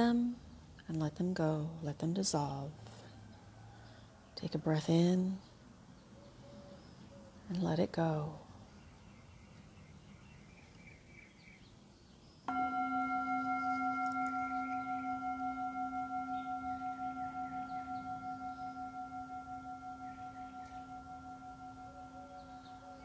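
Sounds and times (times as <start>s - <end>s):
singing bowl ringing: 12.5s - 23.0s.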